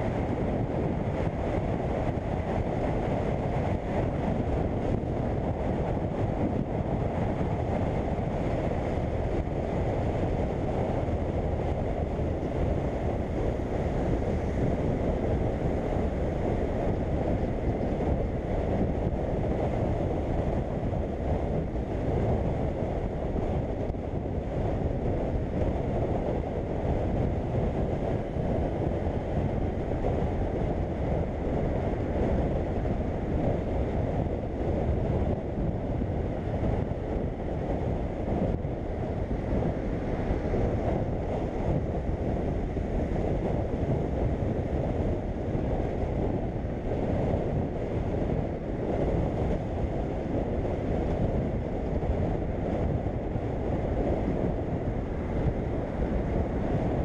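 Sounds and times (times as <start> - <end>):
wind rushing over microphone: 0.0 - 57.0.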